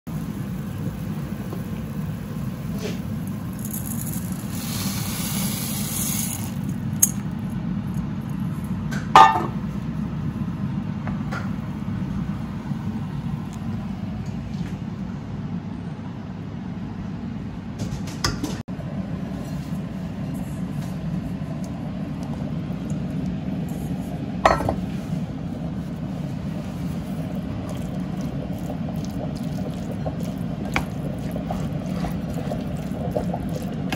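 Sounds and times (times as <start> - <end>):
steady low hum: 0.1 - 33.9
dishes and utensils clinking: 9.2 - 9.6.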